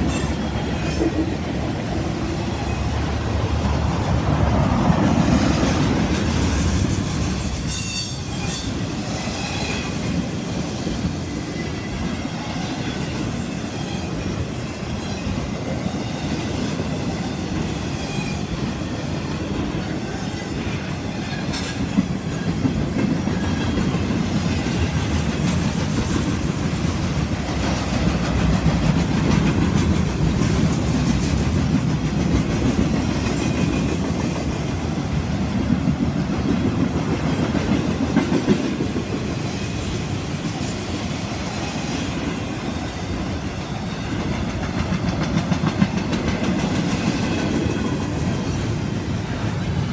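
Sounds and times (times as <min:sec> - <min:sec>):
train wheels rumbling on rails: 0:00.0 - 0:49.9
wheels clicking over rail joints: 0:44.1 - 0:48.7.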